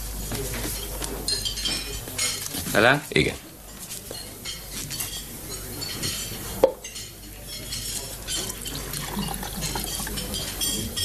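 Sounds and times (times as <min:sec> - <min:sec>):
dishes and cutlery clattering: 0:00.3 - 0:02.9, 0:03.7 - 0:11.0
pouring into a glass: 0:08.1 - 0:11.0.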